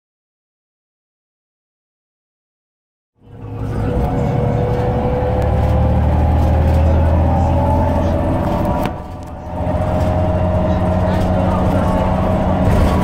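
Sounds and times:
bus diesel drone: 0:03.2 - 0:13.0
drivetrain whine: 0:03.2 - 0:13.0.

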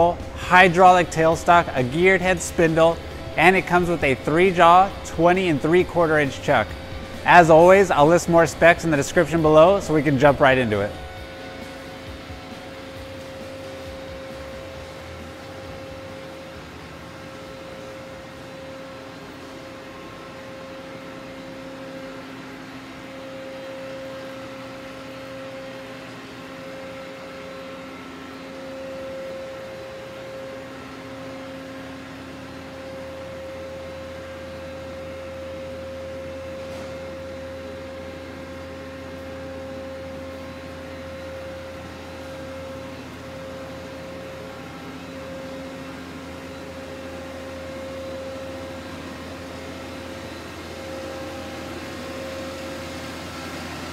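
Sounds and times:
lathe machine hum with held tone: 0:00.0 - 0:53.9.

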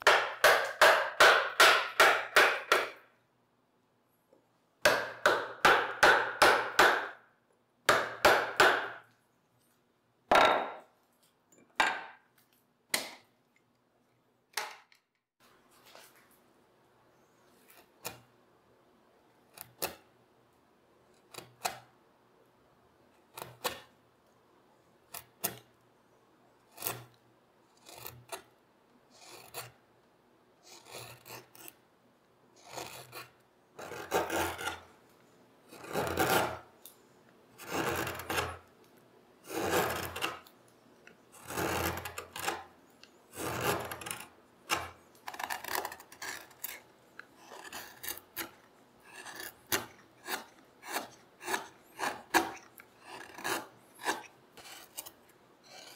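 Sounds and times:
knife carving wood: 0:00.0 - 0:03.1, 0:04.8 - 0:07.2, 0:07.9 - 0:09.1, 0:17.6 - 0:18.4, 0:19.3 - 0:20.1, 0:21.0 - 0:22.0, 0:23.1 - 0:24.0, 0:25.0 - 0:25.8, 0:26.5 - 0:29.9, 0:30.6 - 0:31.8, 0:32.6 - 0:35.0, 0:35.6 - 0:36.9, 0:37.5 - 0:55.9.

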